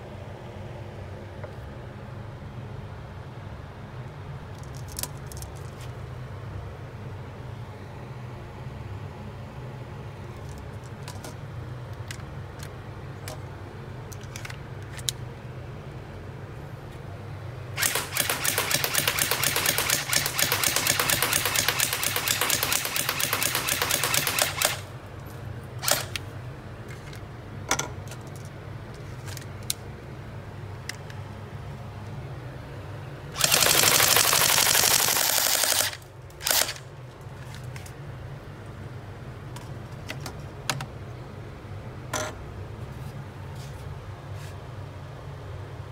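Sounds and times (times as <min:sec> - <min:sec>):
steady low hum: 0:00.0 - 0:45.9
airsoft pistol full auto clatter: 0:17.8 - 0:24.9, 0:25.8 - 0:26.2, 0:33.4 - 0:36.8.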